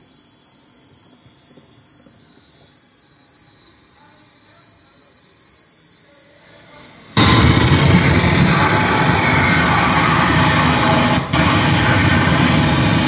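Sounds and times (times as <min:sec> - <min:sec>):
high-pitched electronic tone: 0:07.2 - 0:13.0.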